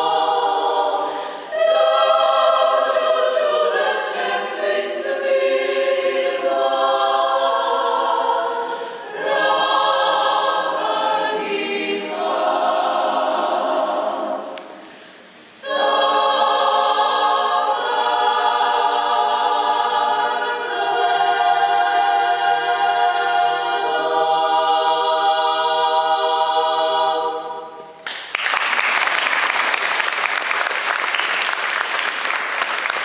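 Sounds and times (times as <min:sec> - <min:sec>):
women's choir singing: 0:00.0 - 0:28.0
audience applause: 0:28.1 - 0:33.0.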